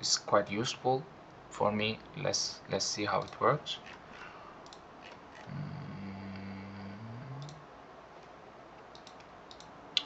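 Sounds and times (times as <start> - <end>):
low steady hum: 0.0 - 10.0
computer mouse clicks: 4.6 - 5.5, 7.4 - 7.6, 8.2 - 10.0.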